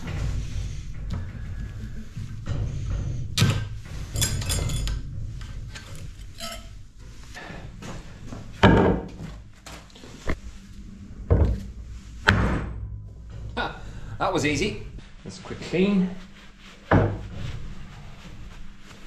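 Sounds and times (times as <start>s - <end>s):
heavy thuds: 0.0s - 19.0s
ringing metal clinks: 6.4s - 6.7s.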